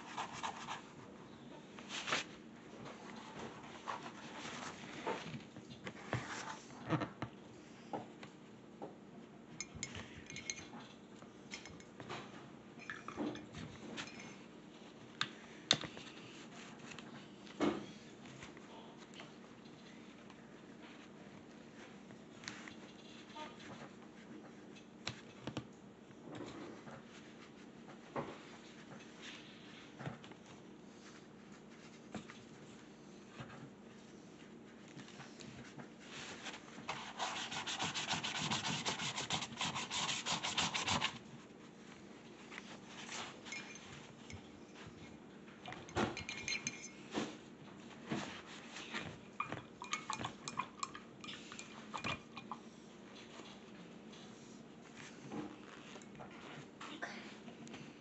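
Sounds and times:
fast rubbing and scrubbing strokes: 36.9 - 41.2.

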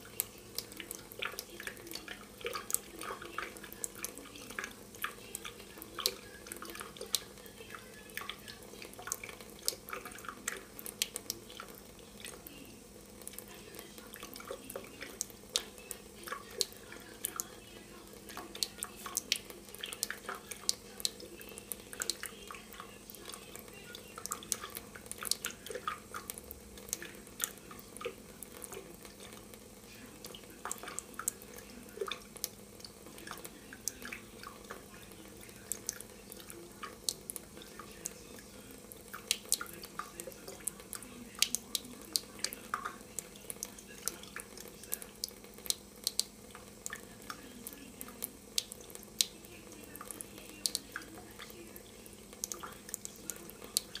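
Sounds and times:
faint steady hum: 0.0 - 54.0
water dripping into metal sink: 0.0 - 54.0.

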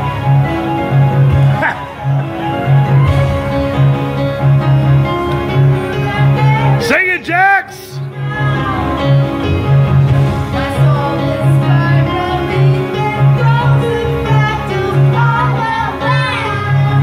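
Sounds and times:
woman singing into a microphone: 10.6 - 17.0
boy singing: 14.3 - 17.0.

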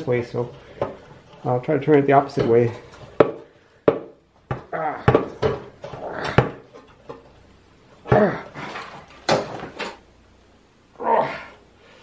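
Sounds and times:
man grunting with effort: 4.7 - 5.2, 8.0 - 8.8, 11.0 - 11.6.

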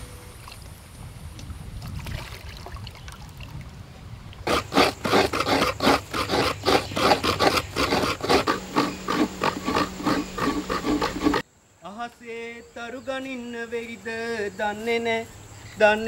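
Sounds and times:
coconut scraping strokes: 4.4 - 11.4.

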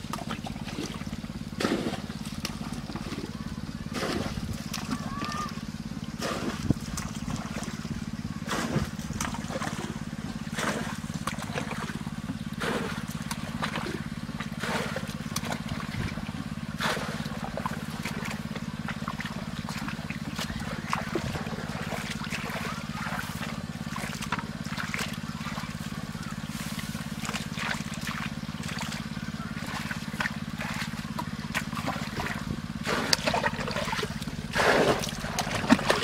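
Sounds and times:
low motor hum: 0.0 - 36.0
water splashing and trickling: 0.0 - 36.0.

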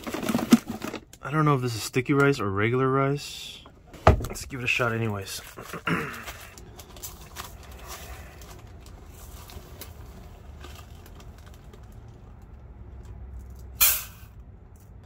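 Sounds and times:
rice rustling in plastic bag: 6.3 - 12.0.

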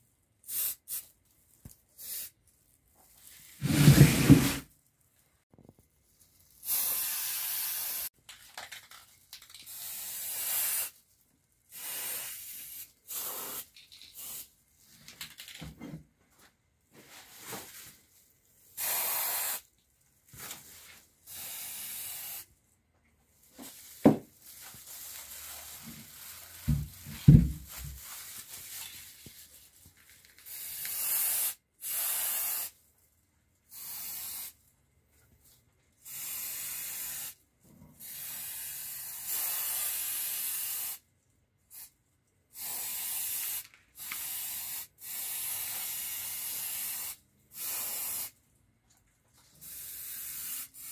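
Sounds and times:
spray paint can hissing: 0.5 - 1.1, 2.0 - 2.3, 6.6 - 8.1, 9.4 - 11.0, 11.7 - 14.5, 18.8 - 19.7, 21.3 - 22.5, 30.4 - 32.8, 33.7 - 34.6, 36.0 - 37.4, 38.0 - 41.0, 41.7 - 41.9, 42.6 - 48.4, 49.6 - 50.9.

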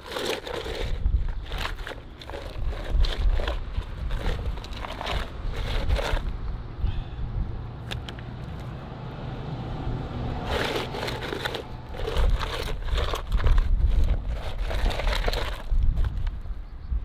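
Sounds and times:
shoe scraping on gravel: 0.0 - 6.4, 10.4 - 16.2.

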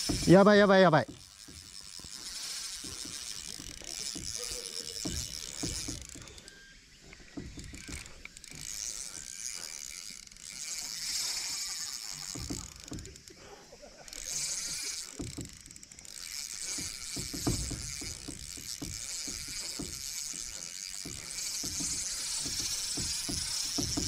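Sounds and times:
fishing reel whirring click: 0.0 - 13.3, 14.0 - 24.0
dull knocks: 15.1 - 15.7, 16.6 - 24.0.

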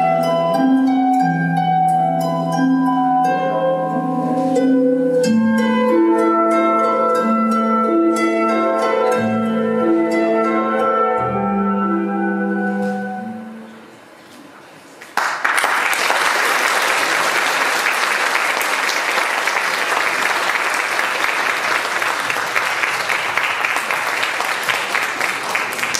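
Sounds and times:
music: 0.0 - 14.0
audience applauding: 15.1 - 25.9.

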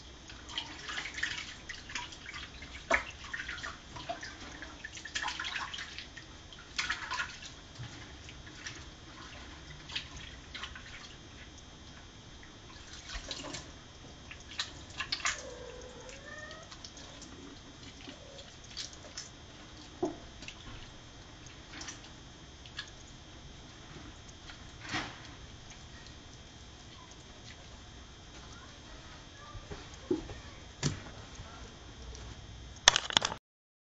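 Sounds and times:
water dripping and splashing in sink: 0.2 - 31.4
kitten meowing: 15.4 - 16.7.

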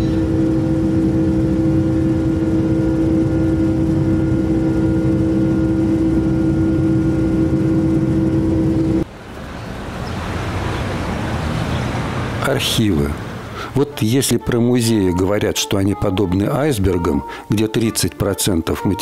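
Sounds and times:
propeller aircraft engine humming: 0.0 - 14.1
street traffic noise: 9.0 - 14.5.

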